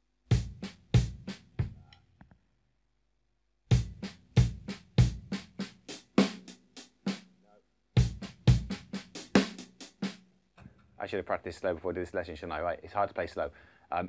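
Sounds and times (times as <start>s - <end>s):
drum strokes: 3.7s - 7.2s, 8.0s - 10.2s.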